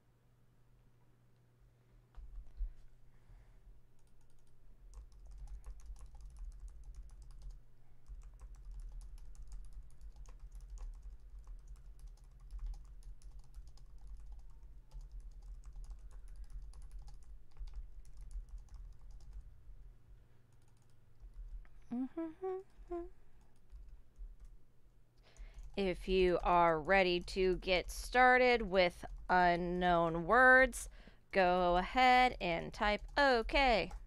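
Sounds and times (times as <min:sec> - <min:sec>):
low steady hum: 0:00.0 - 0:34.0.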